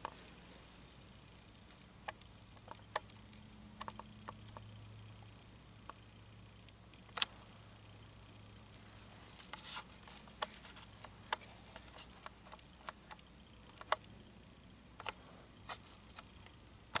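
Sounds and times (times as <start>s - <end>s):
metal bit and chain jingling: 8.8s - 12.2s.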